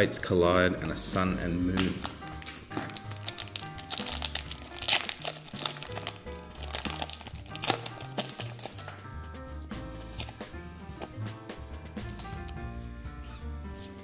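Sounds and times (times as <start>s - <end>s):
background music with bass line: 0.0s - 14.0s
foil wrapper crinkling and tearing: 1.7s - 9.0s.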